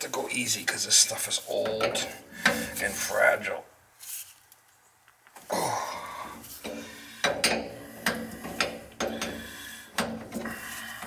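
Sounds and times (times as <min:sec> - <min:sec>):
wrench clicks and clanks on metal: 0:06.6 - 0:10.5.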